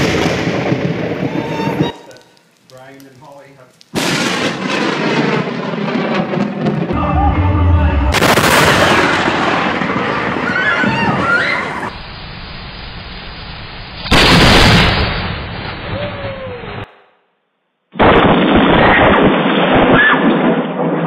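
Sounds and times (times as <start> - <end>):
loud thunderclaps: 0.0 - 1.8, 4.0 - 11.9
steady hiss: 1.2 - 4.0, 11.9 - 14.4
high cries or screams: 6.9 - 9.3, 10.4 - 11.9, 15.9 - 16.9.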